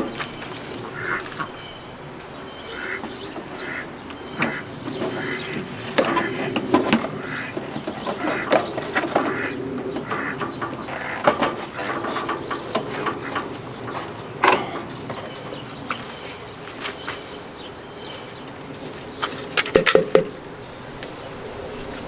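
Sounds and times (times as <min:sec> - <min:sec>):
air filter clicks and scraping: 0:04.3 - 0:16.0, 0:19.2 - 0:20.3
sharp knock: 0:19.7 - 0:20.4.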